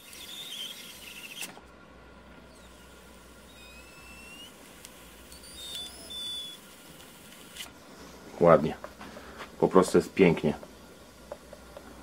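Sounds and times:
high squeaks and rising whistles: 0.0s - 1.5s, 2.4s - 7.0s
low steady gas hiss: 0.0s - 12.0s.

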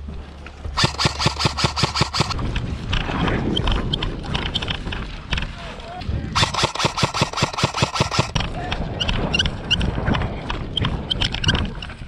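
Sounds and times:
airsoft rifle rapid fire: 0.8s - 2.4s, 6.4s - 8.4s
faint shots and clicks: 0.8s - 2.4s, 6.4s - 9.2s.

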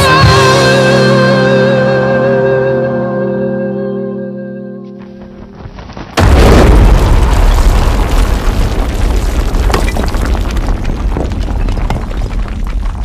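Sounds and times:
scattered crackles: 4.9s - 13.0s
explosion boom and rumbling roar: 6.2s - 13.0s.

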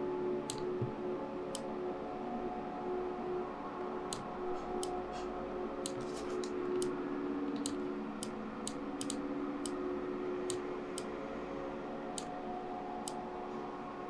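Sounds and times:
low electrical hum: 0.0s - 14.0s
computer mouse clicking: 7.5s - 9.8s.

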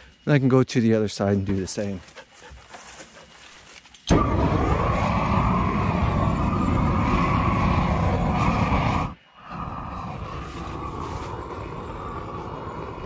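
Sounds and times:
torch flame roaring: 4.1s - 13.0s.

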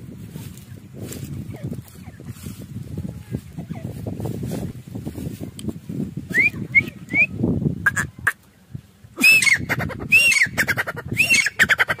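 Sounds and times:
francolin calling: 9.2s - 12.0s.

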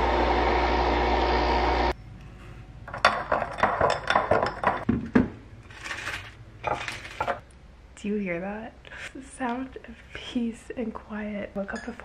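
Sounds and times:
coffee machine humming: 0.0s - 2.0s.

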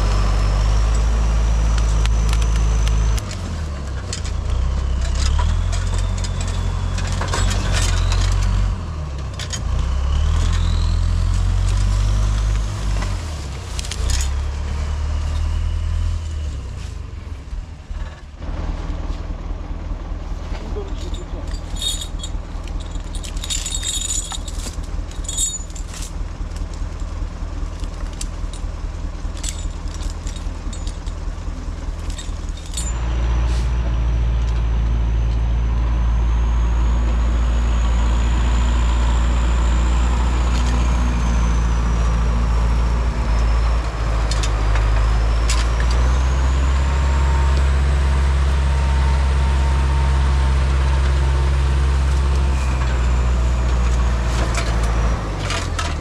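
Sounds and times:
diesel engine idling and revving: 0.0s - 56.0s
steel chain clinking: 20.7s - 27.1s, 27.7s - 33.1s.

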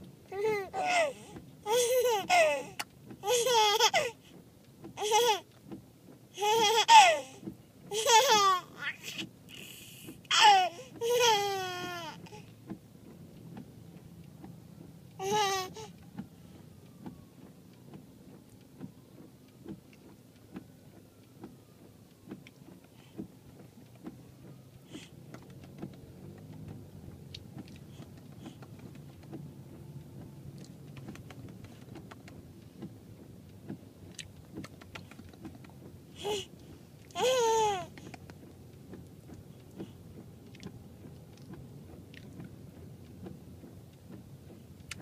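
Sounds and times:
car road rumble: 0.0s - 45.0s
baby babbling: 0.3s - 4.2s, 5.0s - 5.4s, 6.4s - 12.4s, 15.2s - 15.9s, 36.2s - 36.5s, 37.2s - 38.0s
small clicks: 33.5s - 35.9s.

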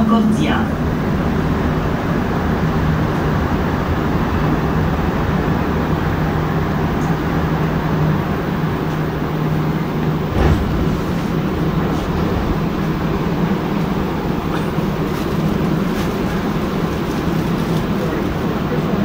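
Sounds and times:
metro train rumbling: 0.0s - 19.0s
thump: 10.3s - 11.3s.

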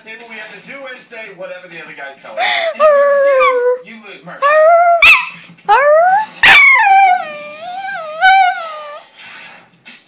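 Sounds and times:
dog howling: 4.4s - 9.0s.

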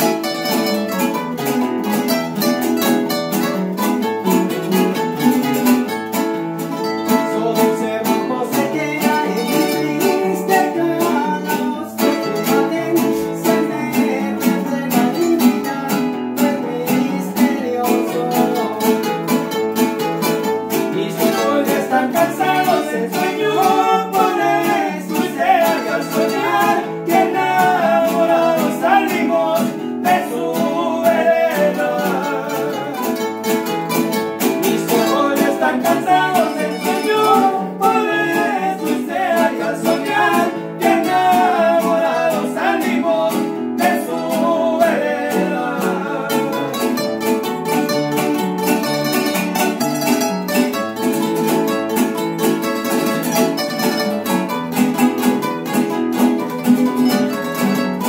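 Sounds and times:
guitars strumming chords: 0.0s - 58.0s
high-pitched plucked instrument melody: 0.0s - 58.0s
person singing: 6.7s - 19.6s, 20.4s - 47.9s.

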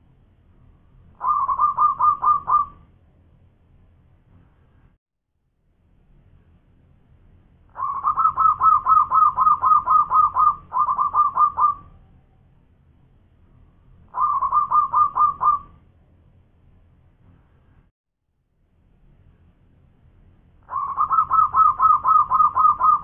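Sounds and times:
dove cooing song: 1.2s - 2.9s, 7.7s - 12.1s, 14.1s - 15.8s, 20.6s - 23.0s.

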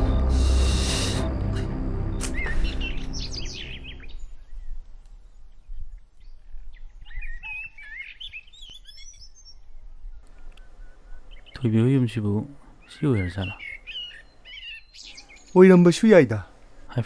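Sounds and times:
dramatic background music: 0.0s - 4.2s
small birds chirping: 2.2s - 17.0s.

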